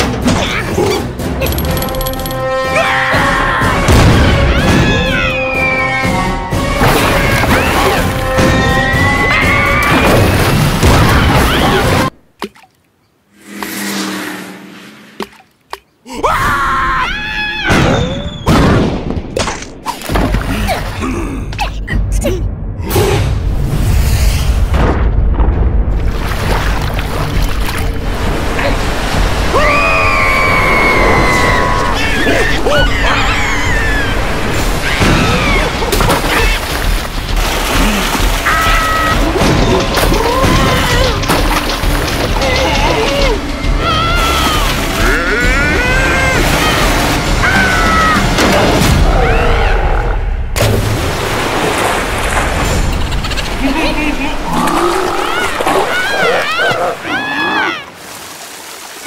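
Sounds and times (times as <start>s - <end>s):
large wave crashing: 28.0s - 32.2s
high squealing cries: 29.6s - 35.7s
cartoon character cries and yells: 31.9s - 34.1s.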